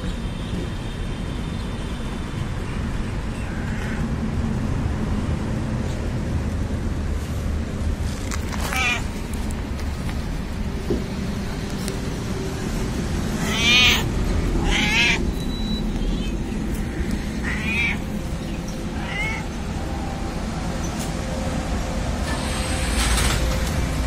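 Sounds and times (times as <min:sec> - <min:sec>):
cat meowing: 0:08.6 - 0:09.1, 0:13.4 - 0:15.2, 0:17.4 - 0:18.1, 0:18.9 - 0:19.6.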